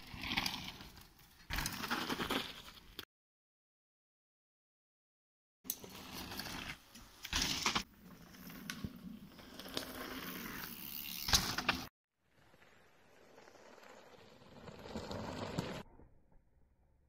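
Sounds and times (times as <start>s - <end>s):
bike landing thud and rattle: 11.1s - 11.9s.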